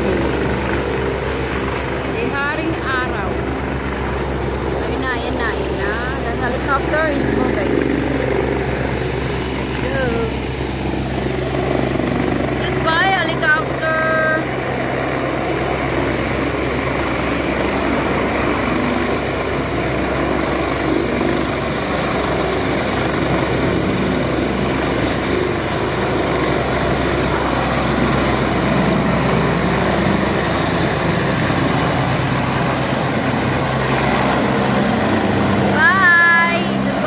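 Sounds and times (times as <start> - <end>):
helicopter rotors and turbines: 0.0 - 37.0
high-pitched turbine whine: 0.0 - 37.0.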